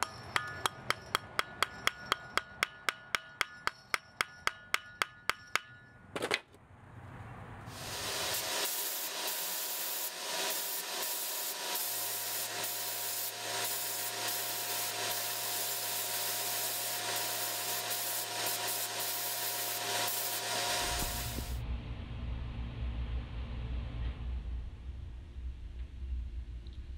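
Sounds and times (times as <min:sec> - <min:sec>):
blast nozzle hissing: 0:07.7 - 0:21.6
low hum: 0:20.9 - 0:26.9.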